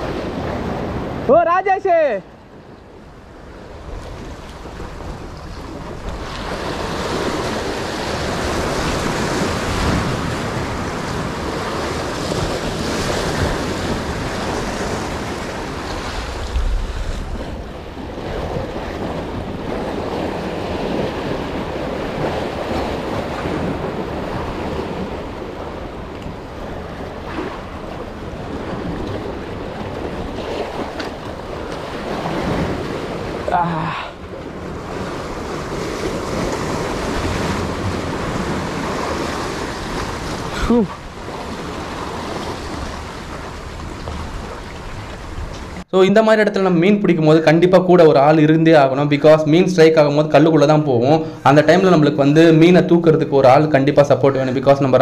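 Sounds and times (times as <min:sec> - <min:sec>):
wind buffeting microphone: 0:02.5 - 0:33.6
sea surf washing over blocks: 0:03.3 - 0:45.9.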